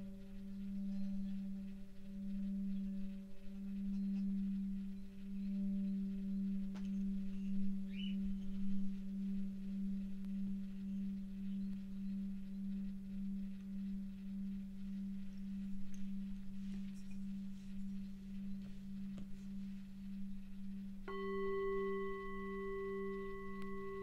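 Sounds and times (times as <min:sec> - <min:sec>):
large singing bowl humming: 0:00.0 - 0:24.0
small singing bowl struck: 0:21.1 - 0:24.0.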